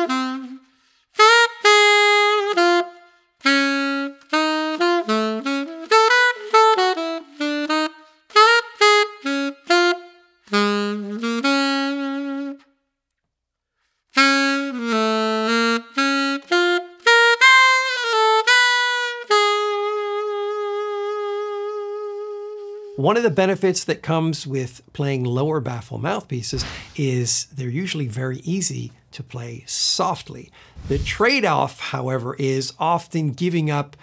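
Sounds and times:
alto saxophone jazz melody: 0.0s - 13.0s, 13.7s - 23.4s.

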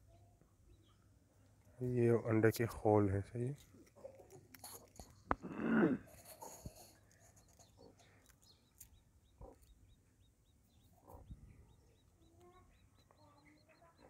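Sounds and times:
chicks peeping: 6.2s - 14.0s.

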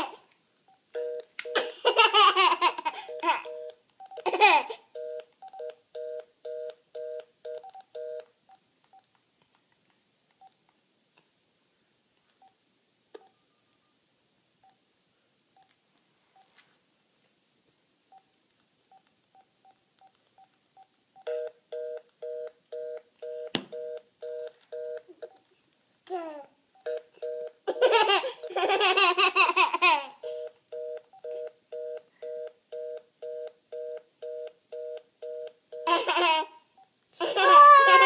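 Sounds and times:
keypad beeps: 5.0s - 8.3s, 26.8s - 27.6s.

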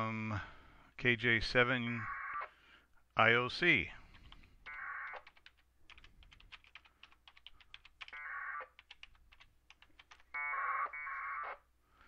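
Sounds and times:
keyboard typing clicks: 4.1s - 10.3s.

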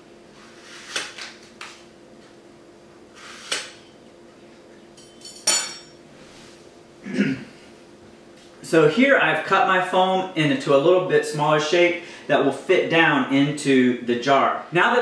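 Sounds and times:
metallic clink: 5.0s - 6.0s.

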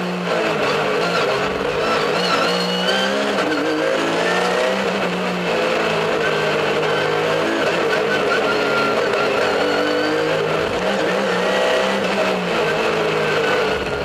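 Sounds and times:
race car engine accelerating: 0.0s - 14.0s.

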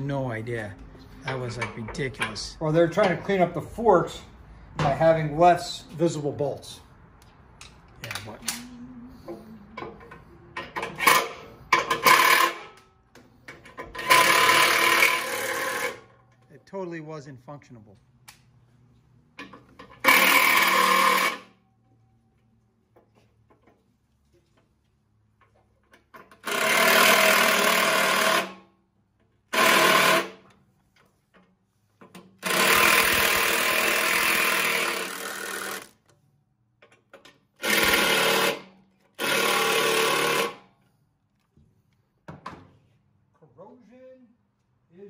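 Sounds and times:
power tool motor buzzing: 20.0s - 21.5s, 26.4s - 28.6s, 29.5s - 30.4s, 32.4s - 36.0s, 37.6s - 40.6s.

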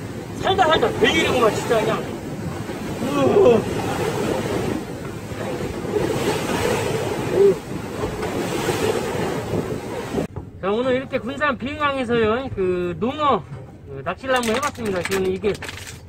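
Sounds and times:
wind buffeting microphone: 0.0s - 10.6s
sea washing around boat: 0.0s - 16.0s.

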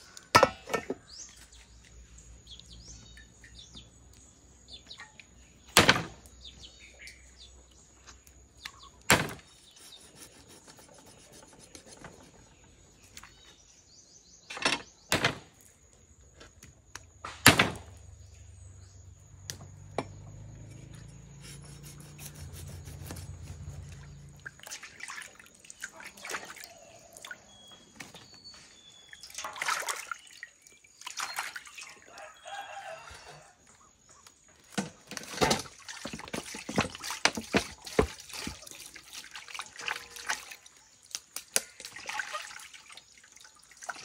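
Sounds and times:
knife scraping fish: 9.5s - 12.5s, 21.4s - 24.0s.

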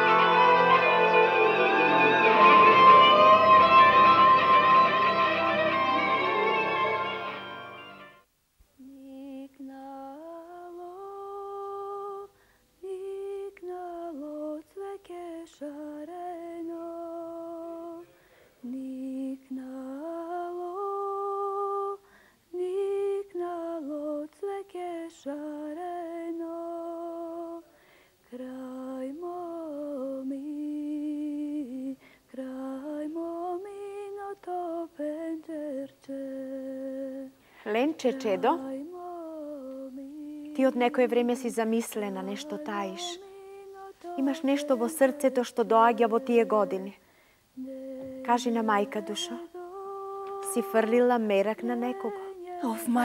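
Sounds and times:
woman singing unaccompanied: 8.8s - 47.0s, 47.6s - 53.0s.

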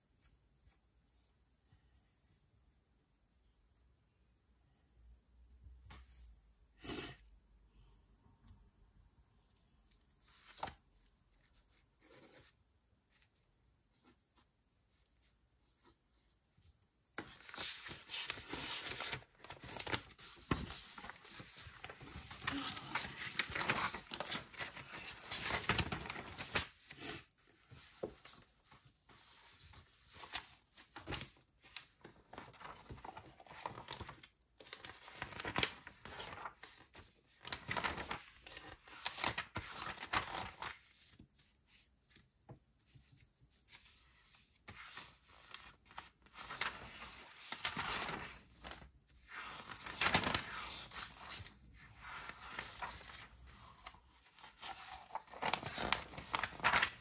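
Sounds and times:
paper rustling and crinkling: 17.2s - 57.0s.

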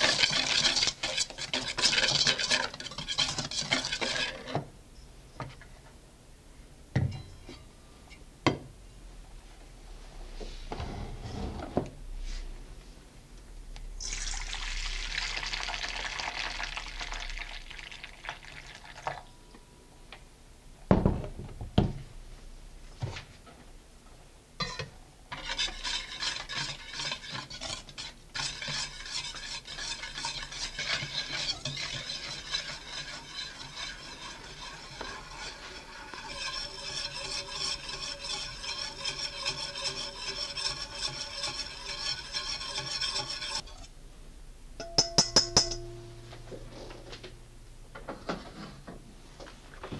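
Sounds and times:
whisk clicking against metal bowl: 44.8s - 45.9s
sharp knocks on bowl: 44.8s - 46.6s.

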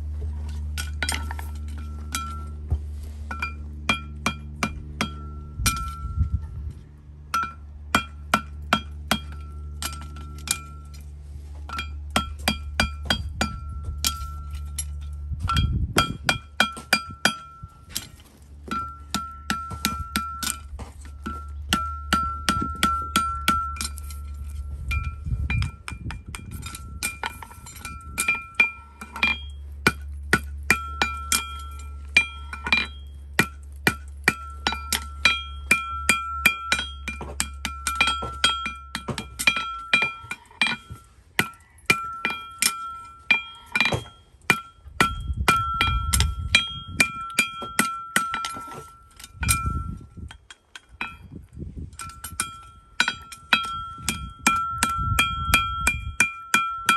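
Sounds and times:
low steady hum: 0.0s - 56.9s
hammer ringing on metal: 24.9s - 50.0s.

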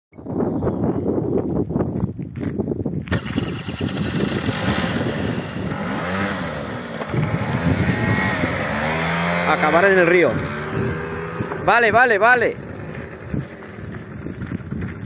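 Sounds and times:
moped engine starting and revving: 3.0s - 15.0s.

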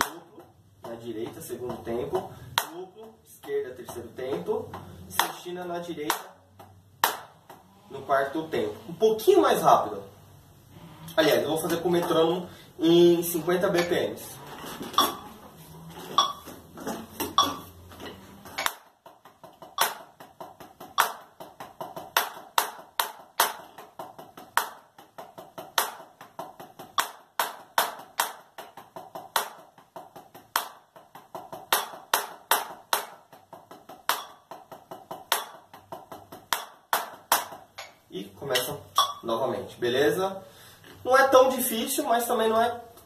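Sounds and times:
drumsticks on practice pad: 17.1s - 31.0s.

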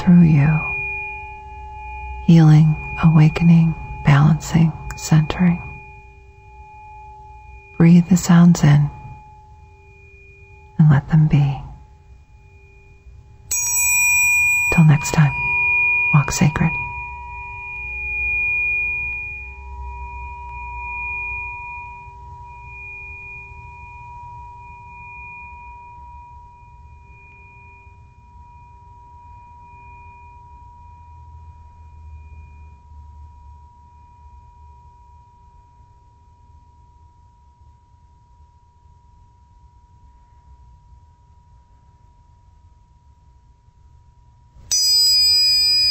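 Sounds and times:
faint low rumble: 0.0s - 13.6s, 14.2s - 27.0s
tuning forks ringing: 0.0s - 36.6s, 44.6s - 45.9s.

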